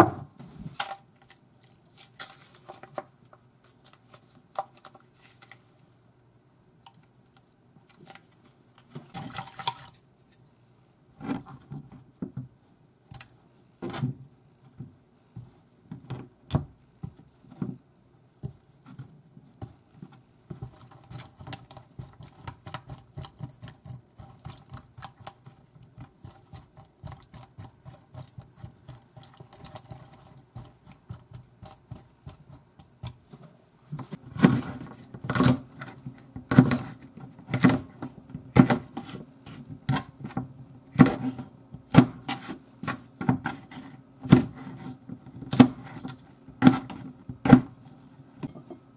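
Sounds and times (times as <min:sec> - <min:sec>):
knife chopping on plastic board: 0:34.3 - 0:39.2, 0:39.9 - 0:42.5, 0:44.2 - 0:44.8, 0:45.4 - 0:46.0, 0:46.6 - 0:47.7.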